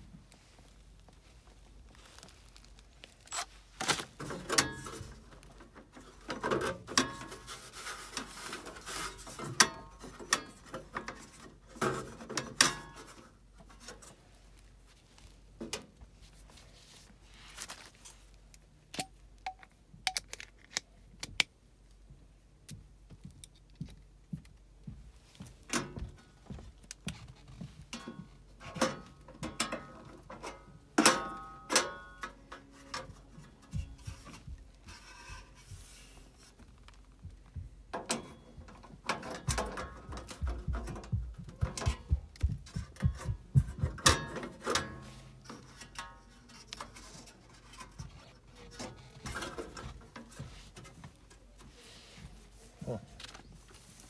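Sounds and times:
hand tools clicking and knocking: 4.2s - 13.4s, 26.9s - 35.0s, 37.4s - 51.6s.

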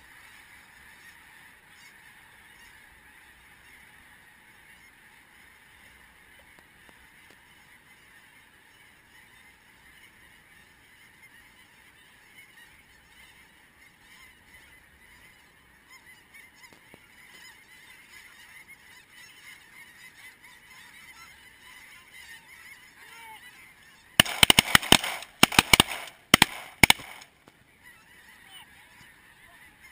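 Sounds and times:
geese honking: 0.0s - 29.9s
shotgun shots: 24.2s - 27.3s.

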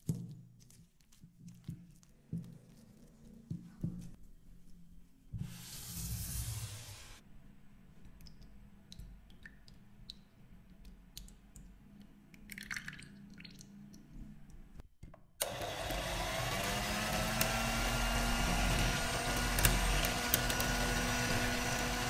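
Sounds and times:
liquid trickling and dripping: 8.0s - 14.8s.

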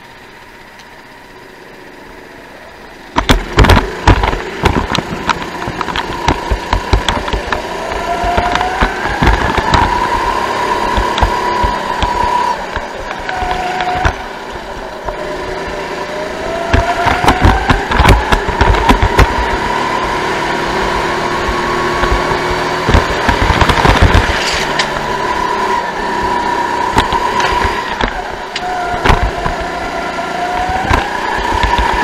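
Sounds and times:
go-kart engine accelerating: 0.0s - 32.0s
sharp rattling knocks: 3.1s - 15.2s.

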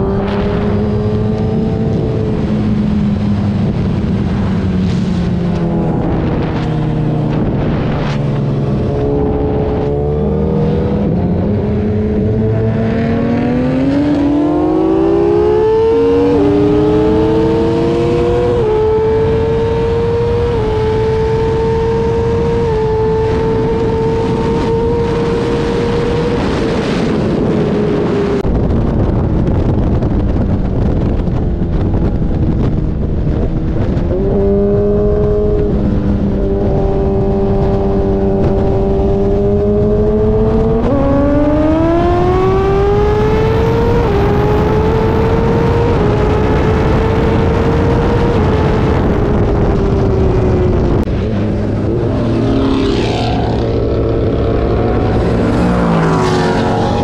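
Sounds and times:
motorcycle engine revving: 0.0s - 57.0s
wind rush on microphone: 0.0s - 57.0s.

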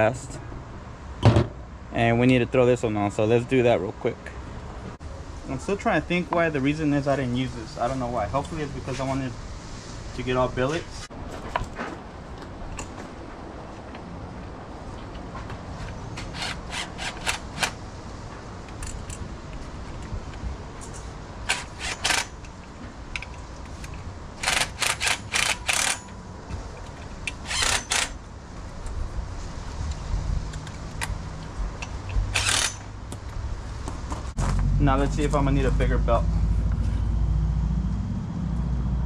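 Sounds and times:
sharp metallic tool clicks: 24.4s - 26.2s, 31.8s - 32.9s
low steady rumble: 34.3s - 39.0s.

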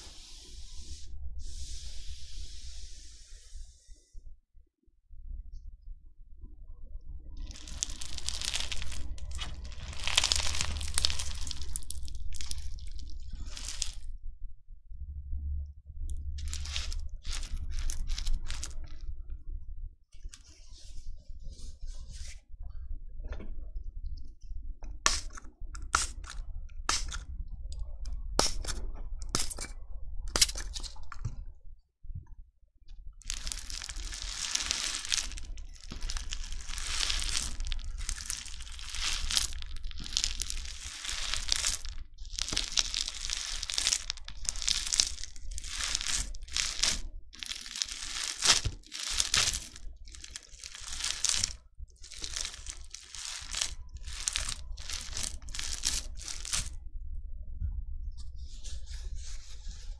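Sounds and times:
crunchy slime crackling and popping: 7.4s - 14.1s, 16.4s - 19.0s, 25.1s - 27.3s, 33.2s - 56.8s.

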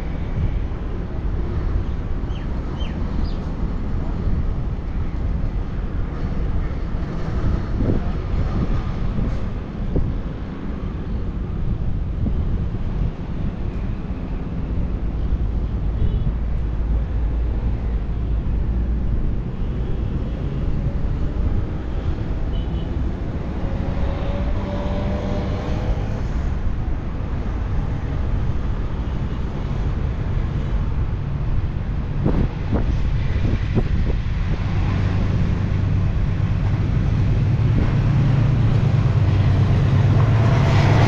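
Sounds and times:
train rumbling past: 34.6s - 41.0s.

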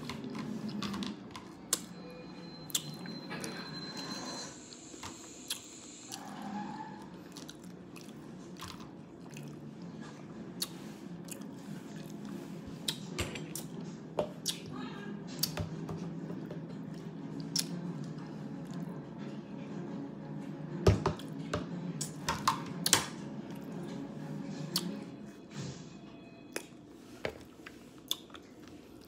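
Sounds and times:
chewing and crunching taco: 5.4s - 13.8s, 16.7s - 19.1s, 26.5s - 29.0s.

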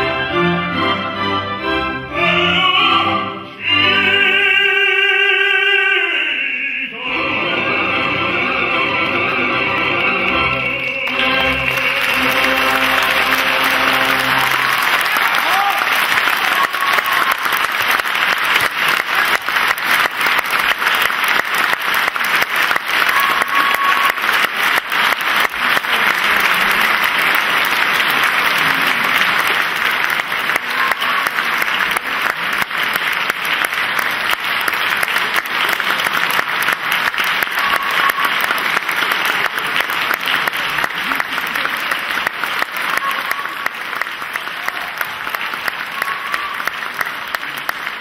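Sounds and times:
audience applauding: 10.2s - 48.0s.

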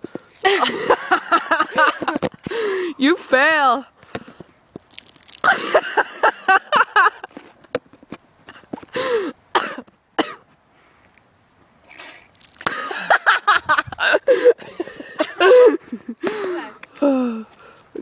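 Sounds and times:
girl coughing: 9.6s - 10.4s.

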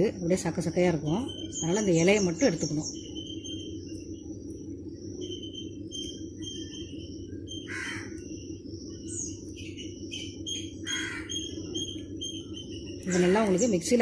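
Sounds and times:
steady low hum: 0.0s - 14.0s
high thin chirping: 1.0s - 14.0s
crow cawing: 7.6s - 8.2s, 10.8s - 11.5s.

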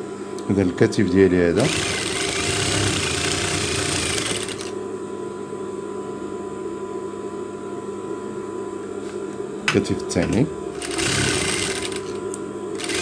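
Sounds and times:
steady mechanical hum: 0.0s - 13.0s
sewing machine stitching: 1.6s - 4.7s, 10.8s - 12.1s, 12.8s - 13.0s.

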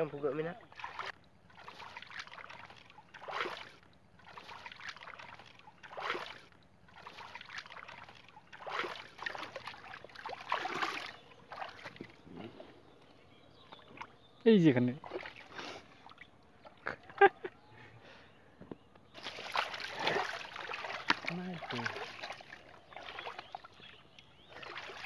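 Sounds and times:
muddy water sloshing and splashing: 0.0s - 17.5s, 19.1s - 25.0s.

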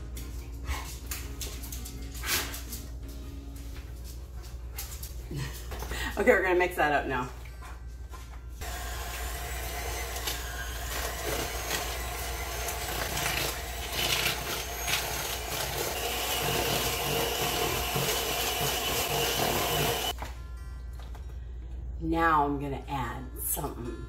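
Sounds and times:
electric hand mixer running: 8.6s - 20.2s.

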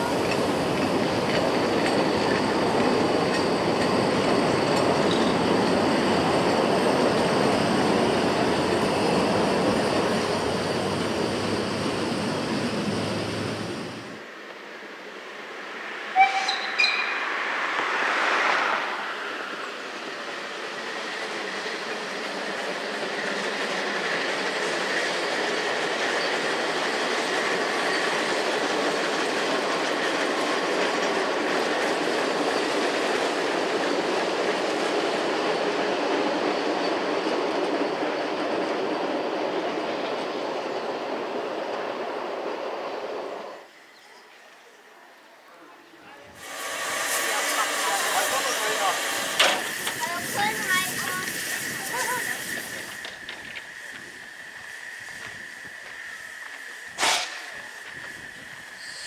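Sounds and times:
train wheels rumbling and clattering: 0.0s - 14.2s, 16.4s - 43.7s, 46.4s - 59.0s
steam train whistle toots: 16.2s - 17.0s, 58.8s - 59.0s.

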